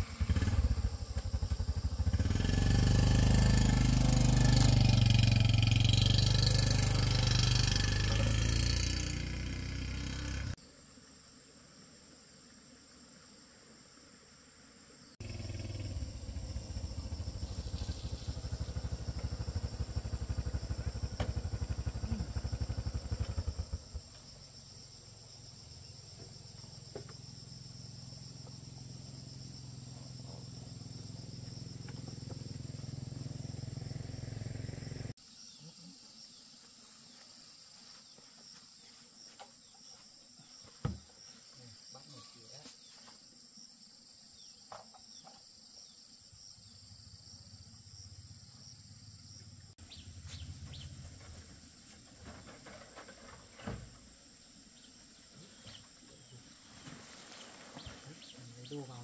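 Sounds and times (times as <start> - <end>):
insects droning: 0.0 - 59.0
low engine rumble: 15.2 - 24.3.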